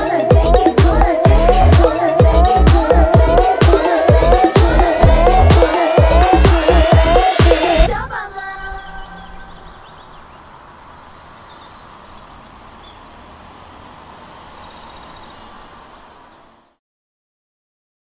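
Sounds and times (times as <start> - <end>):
music: 0.0 - 8.2
small birds chirping: 8.4 - 16.8.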